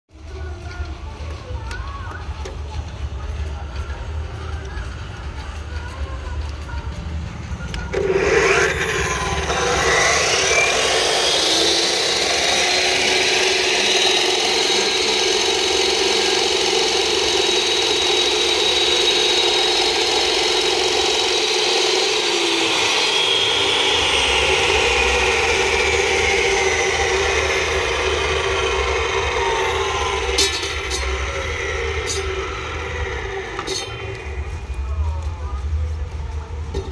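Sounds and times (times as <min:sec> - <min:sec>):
concrete saw cutting concrete: 0:07.9 - 0:34.8.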